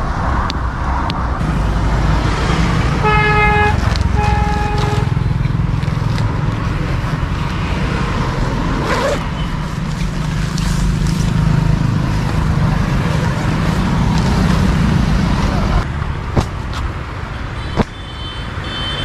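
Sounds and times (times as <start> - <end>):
road traffic rumble: 0.0 - 19.0
car horn toot: 3.0 - 5.1.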